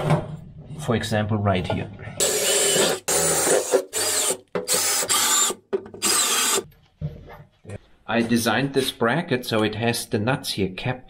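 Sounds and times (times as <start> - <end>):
handheld power tool bursts: 2.2 - 6.7.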